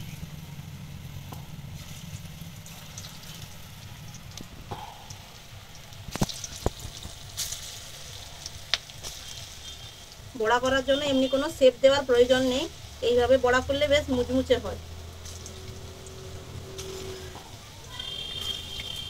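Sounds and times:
hot oil sizzling: 0.0s - 19.0s
oil popping sharply: 1.3s - 7.6s.

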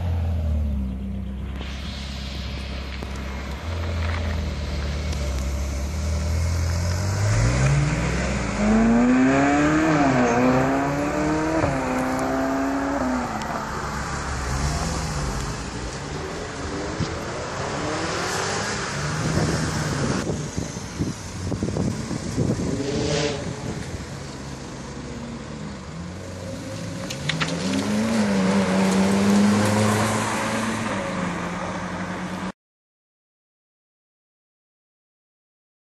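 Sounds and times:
low engine hum: 0.0s - 18.0s
cars driving off: 0.0s - 32.5s
sports car accelerating hard: 3.4s - 15.7s, 25.9s - 32.4s.

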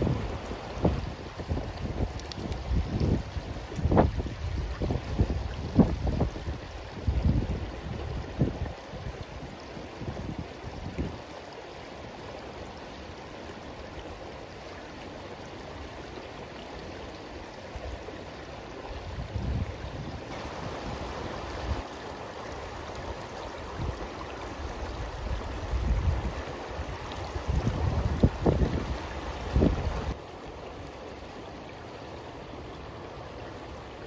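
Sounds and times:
wind rumbling on microphone: 0.0s - 11.3s, 18.9s - 21.9s, 22.8s - 30.2s
river water flowing: 0.0s - 34.0s.

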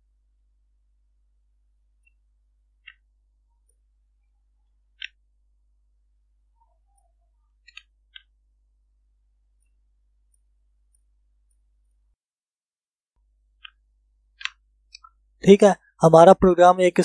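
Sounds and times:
computer mouse and keyboard clicks: 2.8s - 3.0s, 4.9s - 5.2s, 6.9s - 8.4s, 13.6s - 15.2s.

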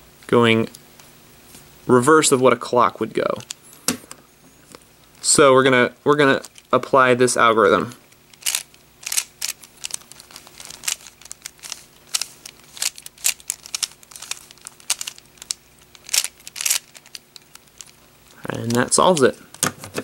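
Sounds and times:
puzzle cube plastic clicks: 8.3s - 19.7s.

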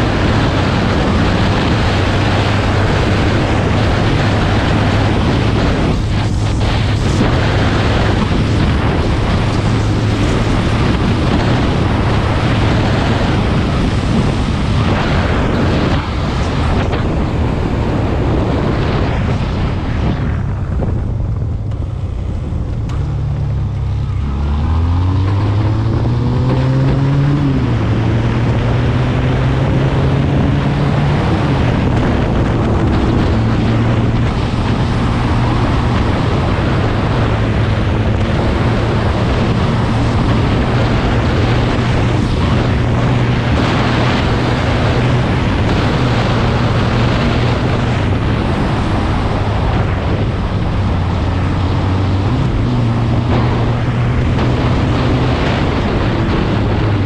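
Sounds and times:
wind noise on microphone: 0.0s - 57.0s
quad bike engine running: 20.2s - 57.0s.

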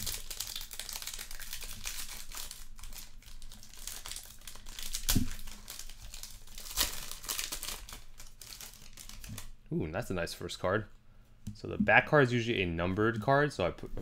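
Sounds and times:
foil wrapper crinkling and tearing: 0.0s - 9.5s.

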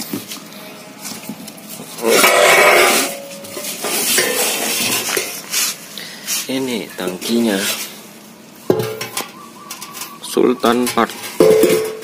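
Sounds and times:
scraping rustle with metallic ring: 0.9s - 8.1s.

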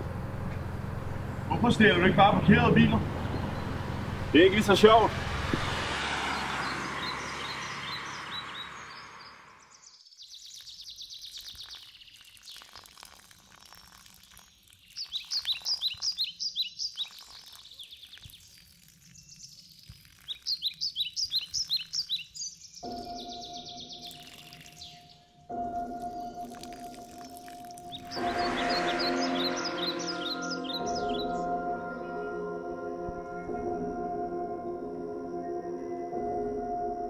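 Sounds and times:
car driving off: 0.0s - 9.8s, 28.0s - 37.0s
songbird chirping: 1.2s - 5.1s, 5.7s - 12.9s, 14.3s - 37.0s.

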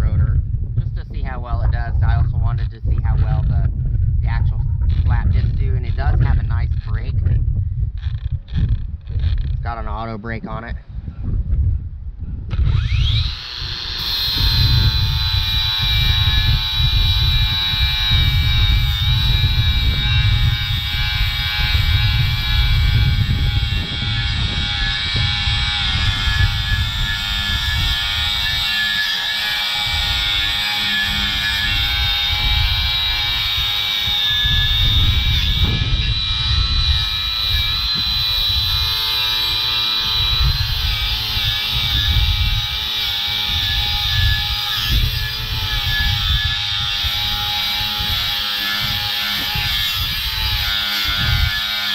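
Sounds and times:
wind rumble on microphone: 0.0s - 51.9s
angle grinder whining: 12.5s - 51.9s.

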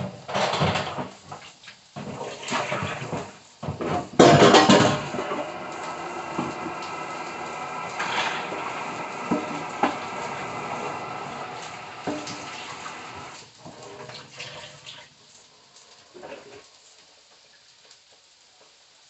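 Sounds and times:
kitchen tap running: 0.0s - 16.6s.

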